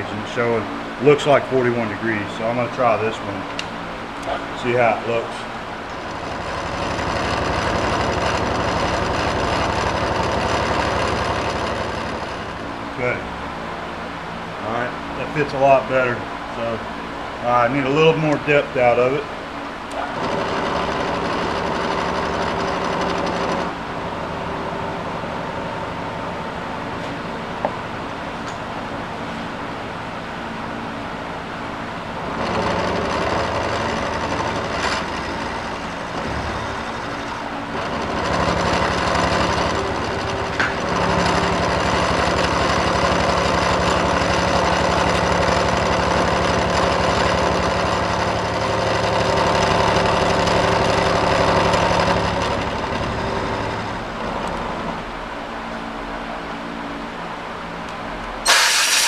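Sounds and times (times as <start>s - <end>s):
milling spindle hum: 14.5s - 27.7s
tool cutting metal: 58.4s - 59.0s.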